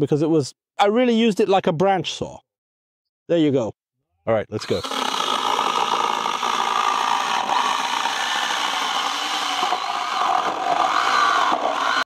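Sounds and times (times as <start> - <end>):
electric chainsaw cutting wood: 4.6 - 12.0.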